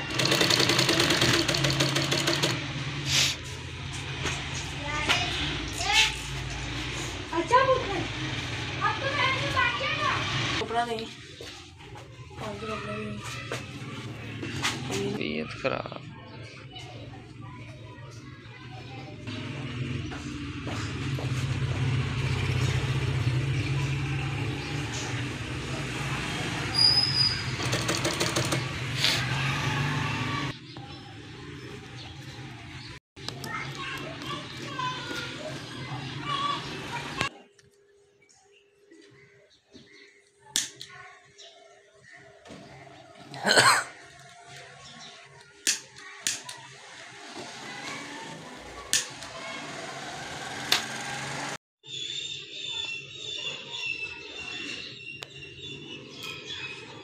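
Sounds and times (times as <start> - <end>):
rapid sewing machine stitching: 0.0 - 2.6, 27.5 - 28.7
sewing machine motor humming: 0.0 - 2.9, 27.4 - 30.5, 47.1 - 51.6.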